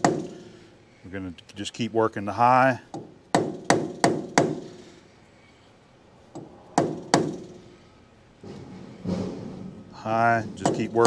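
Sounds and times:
hammer tapping metal hub: 10.6 - 11.0.

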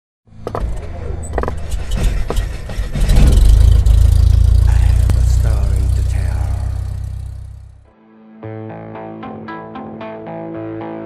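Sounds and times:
deep rumble: 0.7 - 7.9.

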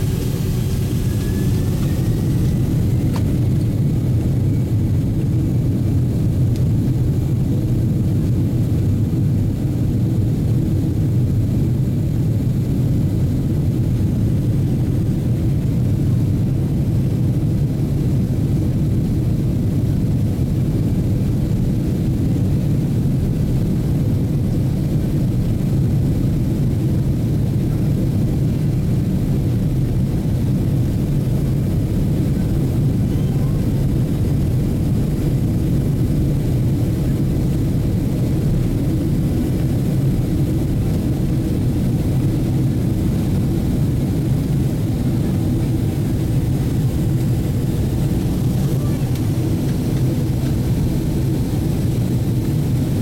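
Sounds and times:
rising engine whine: 0.0 - 6.6, 31.2 - 52.6
jet engines and runway noise: 0.0 - 53.0.

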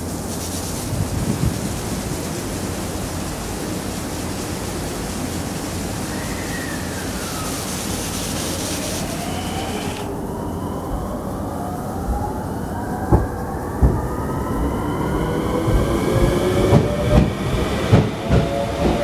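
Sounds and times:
electric train equipment hum: 1.0 - 19.0
traction motor whine: 6.1 - 11.5.

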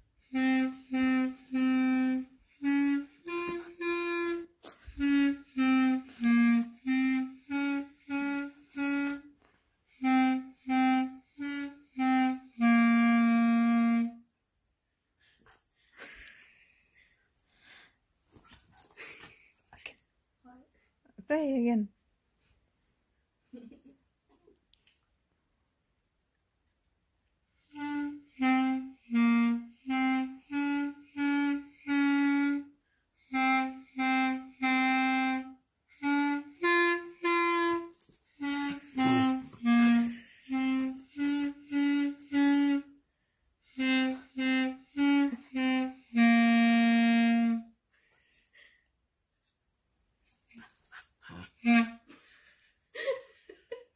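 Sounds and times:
clarinet playing: 0.1 - 14.3, 27.6 - 43.0, 43.6 - 47.8, 51.5 - 52.1.

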